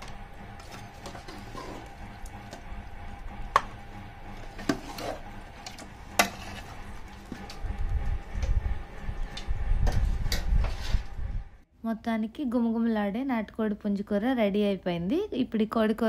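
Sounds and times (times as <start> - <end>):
low rumble: 0.0 - 11.7
metal ladle scraping a pot: 0.6 - 2.0, 4.4 - 7.4.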